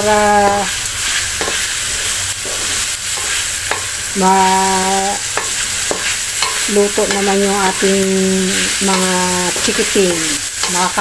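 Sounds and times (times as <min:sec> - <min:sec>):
chicken sizzling in a wok: 0:00.0 - 0:11.0
wooden spatula scraping a pan: 0:00.4 - 0:03.9.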